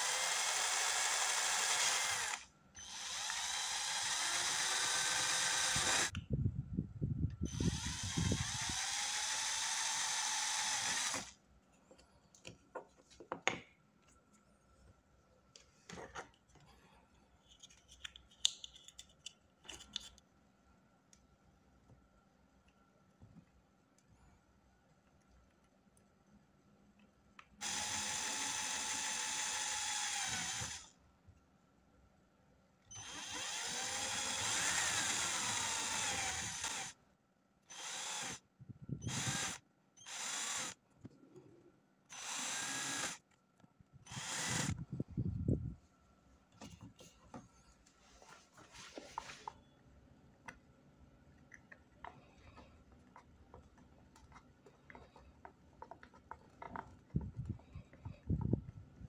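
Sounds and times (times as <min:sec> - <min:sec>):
cordless drill drilling plastic: 0:00.0 - 0:06.1, 0:07.5 - 0:11.3, 0:27.6 - 0:30.9, 0:32.9 - 0:37.0, 0:37.7 - 0:38.4, 0:39.0 - 0:40.8, 0:42.1 - 0:43.2, 0:44.0 - 0:44.8.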